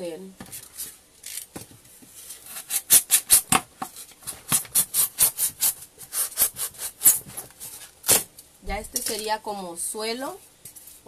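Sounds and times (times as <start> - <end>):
knife cutting styrofoam: 2.3 - 8.3.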